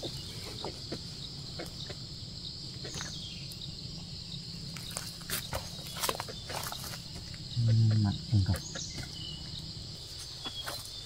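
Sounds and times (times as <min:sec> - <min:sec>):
high insect chirring: 0:00.0 - 0:11.0
pine needles rustling underfoot: 0:04.7 - 0:07.4, 0:10.0 - 0:11.0.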